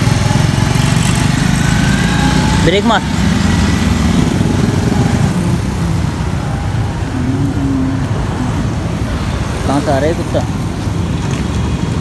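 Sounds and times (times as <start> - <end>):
motorcycle engine running: 0.0 - 6.1.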